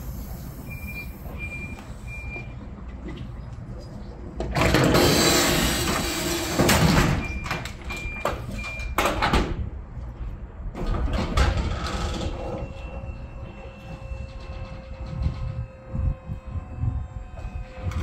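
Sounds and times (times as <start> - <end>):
mechanical clatter and knocks: 4.3 - 9.7, 10.7 - 13.1
steady machine hum: 13.1 - 18.0.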